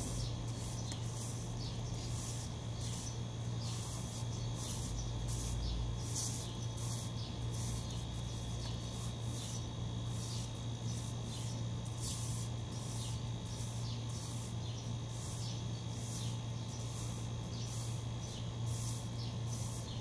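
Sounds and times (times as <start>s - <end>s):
broom sweeping tiled floor: 0.0s - 20.0s
steady low hum: 0.0s - 20.0s.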